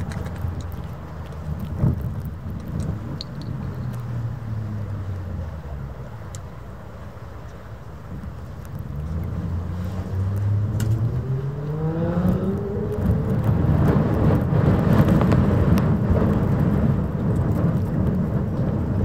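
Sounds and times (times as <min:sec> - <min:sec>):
motor engine revving: 0:09.0 - 0:15.2.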